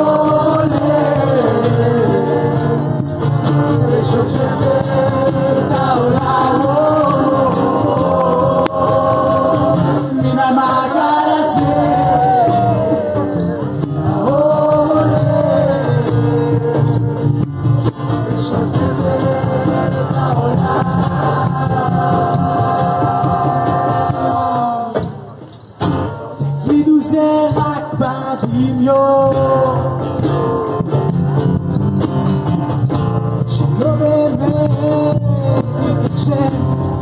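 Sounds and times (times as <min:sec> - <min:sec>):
classical guitar: 0:00.0 - 0:24.6, 0:25.4 - 0:37.0
voices singing together: 0:00.0 - 0:25.3
bass: 0:00.0 - 0:37.0
hand percussion: 0:00.0 - 0:37.0.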